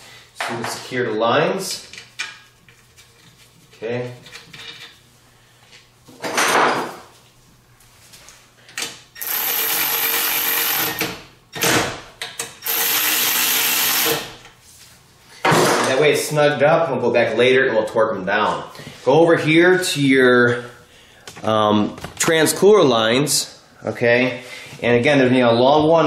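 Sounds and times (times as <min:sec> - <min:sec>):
cordless ratchet running: 0:09.2 - 0:11.0, 0:12.6 - 0:14.3.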